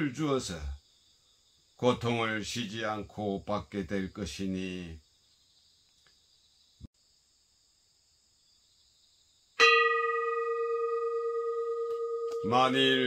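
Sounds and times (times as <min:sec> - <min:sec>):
small metal bell ringing: 0:09.6 - 0:13.0.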